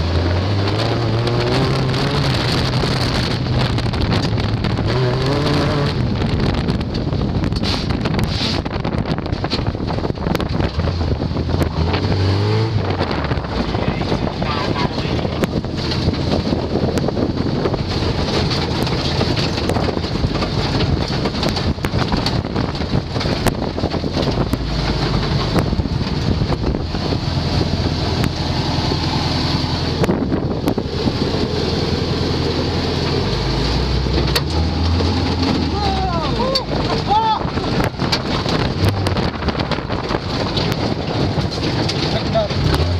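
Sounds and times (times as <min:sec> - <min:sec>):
off-road vehicle engine under load: 0:00.0 - 0:42.9
vehicle body knocking and rattling: 0:00.0 - 0:42.9
wind buffeting microphone: 0:00.0 - 0:42.9.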